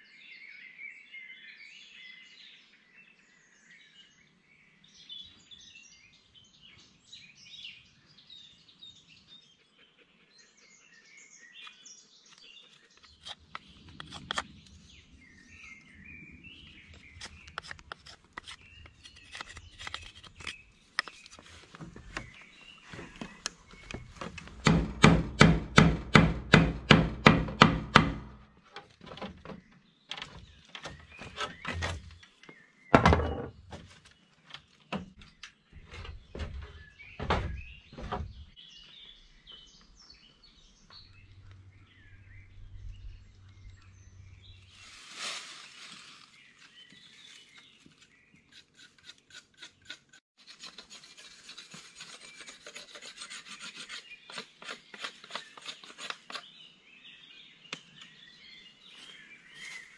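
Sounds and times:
hand tool working wood: 30.1 - 32.3, 46.6 - 56.5
scraping strokes: 44.7 - 56.4.

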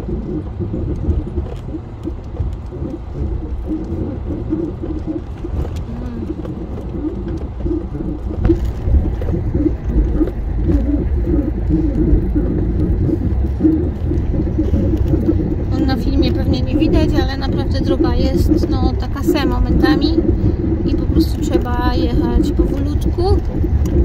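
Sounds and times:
truck low rumble: 0.0 - 24.0.

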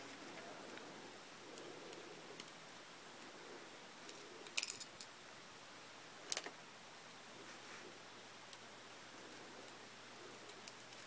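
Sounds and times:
small metal parts clicking: 4.1 - 5.1.

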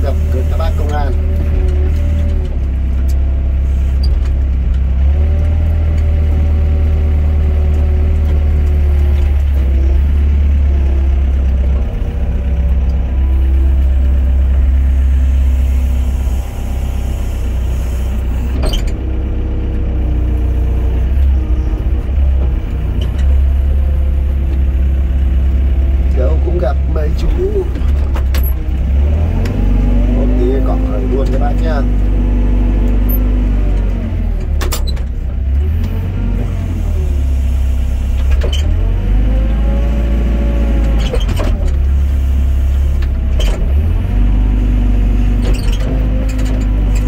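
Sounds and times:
excavator diesel engine: 0.0 - 47.0
hydraulic whine: 11.9 - 19.4.

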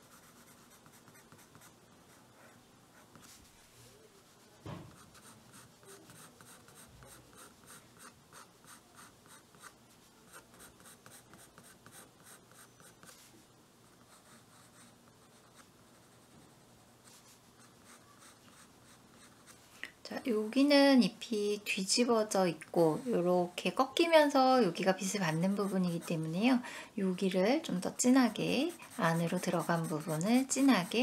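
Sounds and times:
pencil scratching on paper: 0.0 - 3.5, 4.9 - 13.3, 22.7 - 26.6, 27.6 - 31.0
soft bump: 4.6 - 5.0.

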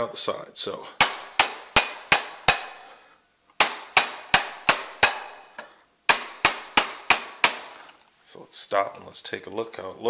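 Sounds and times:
mallet knocking on hammer: 1.0 - 2.8, 3.6 - 5.4, 6.1 - 7.7.

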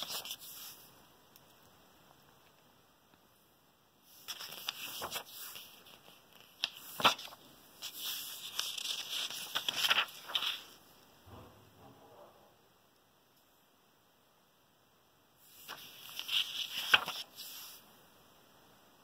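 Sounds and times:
paper pages rustling and snapping: 0.0 - 0.8, 4.2 - 10.8, 15.6 - 17.8.

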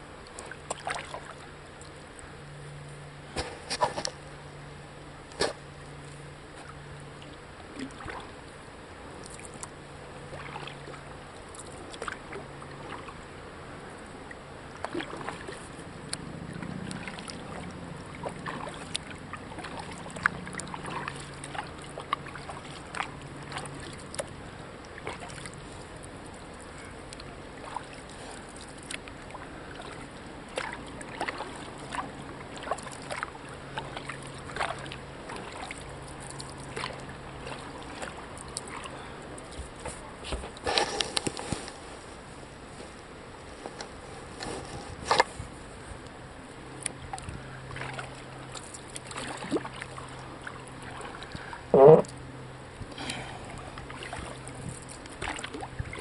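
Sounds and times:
soft hiss of wind and water: 0.0 - 56.0
paddle splashes and drips: 0.1 - 2.3, 5.2 - 41.8, 43.6 - 56.0.

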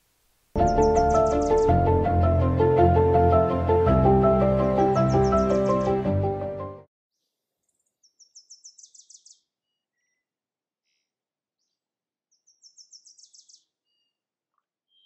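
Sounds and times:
songbird singing: 0.6 - 2.7, 4.6 - 6.1, 7.2 - 10.2, 11.6 - 14.2.

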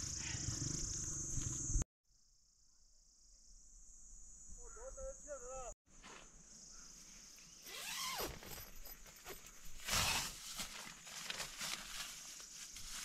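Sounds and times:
crickets chirping: 0.0 - 13.0
tent fabric rustling: 7.6 - 13.0
zip being pulled: 7.7 - 10.4.

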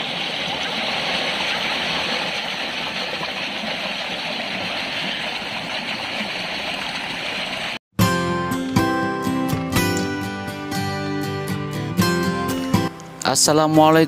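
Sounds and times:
stream rushing over boulders: 0.0 - 7.8
plucked acoustic guitar music: 8.0 - 14.0.

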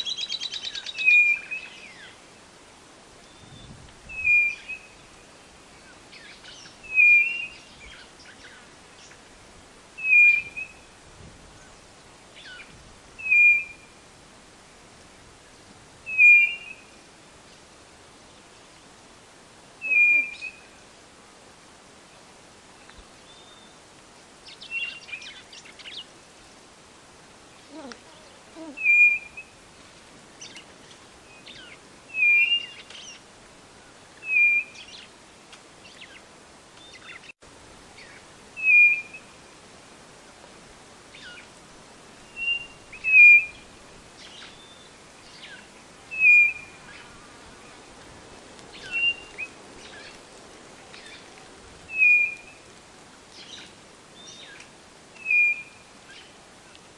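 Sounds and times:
bird whistled calls: 0.0 - 2.1, 3.3 - 5.0, 6.5 - 8.0, 10.0 - 10.8, 13.2 - 13.9, 16.1 - 16.9, 19.8 - 20.7, 28.7 - 29.5, 31.3 - 33.2, 34.2 - 35.0, 38.0 - 39.3, 42.2 - 43.6, 44.2 - 47.1, 48.8 - 50.1, 51.9 - 52.6, 55.2 - 56.2.

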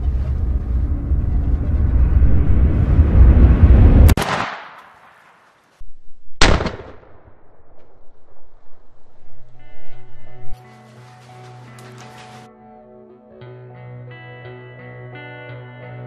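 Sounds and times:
loud low rumble: 0.0 - 4.2
shotgun blasts with echo: 4.1 - 5.4, 6.4 - 8.6.

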